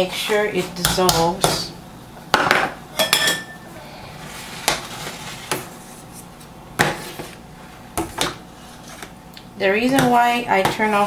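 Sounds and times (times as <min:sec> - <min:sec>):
ladle clinking on pot: 0:03.0 - 0:03.6.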